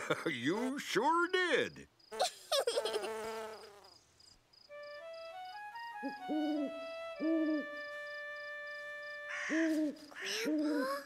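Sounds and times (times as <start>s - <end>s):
crickets chirping: 0.0s - 10.9s
soft rising music notes: 4.7s - 9.3s
owl hooting: 6.0s - 7.8s, 9.3s - 11.0s.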